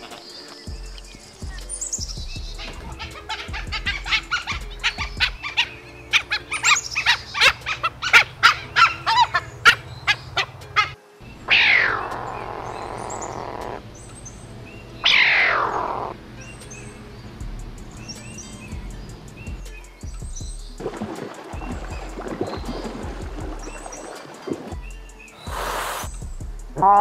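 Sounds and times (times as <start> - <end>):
wild dogs chirping whistles: 0.7 - 11.0
wild dog hissing calls: 2.6 - 13.9, 15.0 - 16.2, 25.2 - 26.3.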